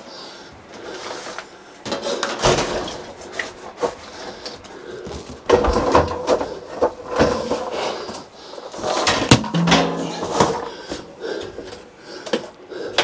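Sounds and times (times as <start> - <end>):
knocking and scraping inside cabinet: 8.9 - 10.7.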